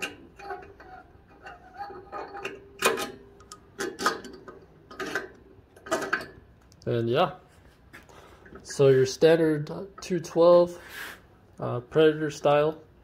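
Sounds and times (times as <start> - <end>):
metal carburetor parts clinking: 0.0 - 6.6.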